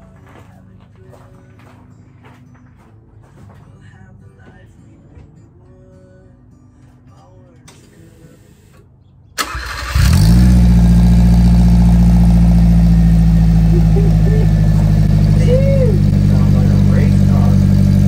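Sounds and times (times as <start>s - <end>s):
engine starter cranking: 9.4s - 10.8s
car engine idling: 9.4s - 18.0s.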